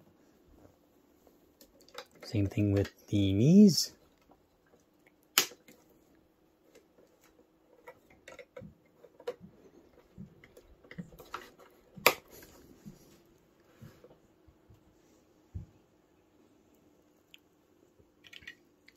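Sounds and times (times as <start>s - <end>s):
plastic snap: 5.3s - 5.8s, 12.0s - 12.4s
plastic toy parts clicking: 6.7s - 9.4s, 18.2s - 18.9s.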